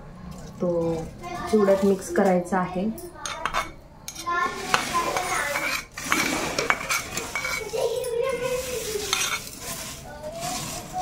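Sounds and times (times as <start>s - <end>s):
spatula scraping flakes in pot: 3.2s - 11.0s.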